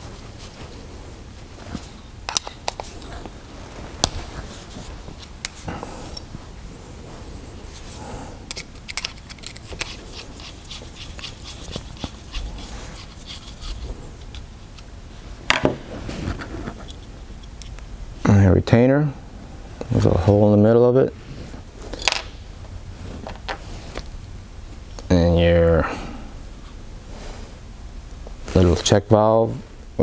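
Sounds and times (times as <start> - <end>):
metal parts clicking and tapping: 8.5 - 9.9.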